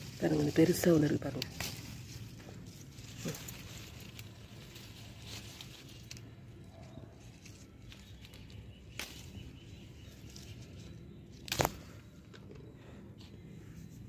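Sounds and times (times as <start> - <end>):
faint rustling of leaves: 0.0 - 14.0
sharp snap of a stem: 8.9 - 9.4, 11.4 - 11.9.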